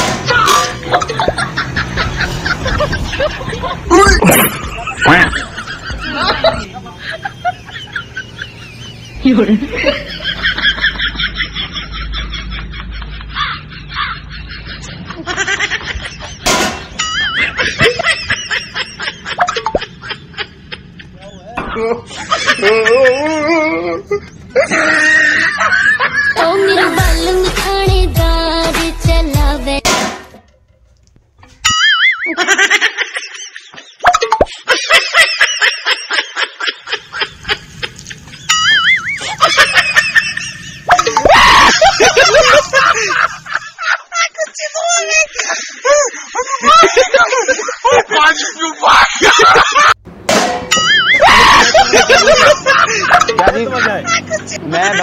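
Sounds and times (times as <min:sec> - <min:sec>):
loud metallic crash: 0:00.0 - 0:00.9, 0:16.4 - 0:17.0, 0:29.8 - 0:30.7, 0:50.1 - 0:51.2
snickering laughter: 0:00.8 - 0:27.0, 0:31.8 - 0:50.0, 0:50.8 - 0:55.0
warbling comic sound effect: 0:03.9 - 0:05.4
pots and pans clanging: 0:50.3 - 0:51.1.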